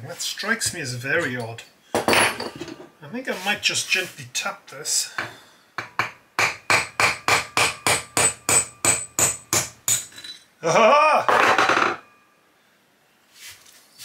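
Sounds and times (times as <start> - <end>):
man exclaiming: 10.6 - 11.3.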